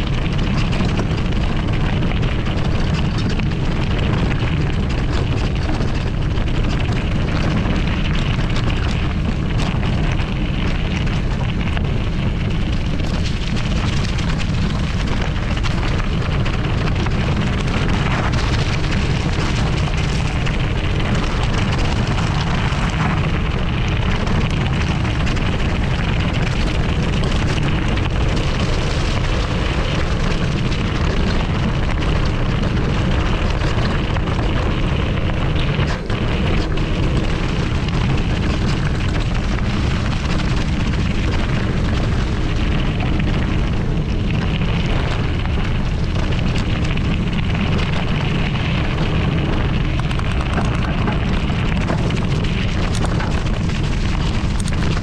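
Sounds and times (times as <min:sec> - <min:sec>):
bike tyres crunching on gravel: 0:00.0 - 0:55.0
small clicks and rattles: 0:00.0 - 0:55.0
wind buffeting microphone: 0:00.0 - 0:55.0.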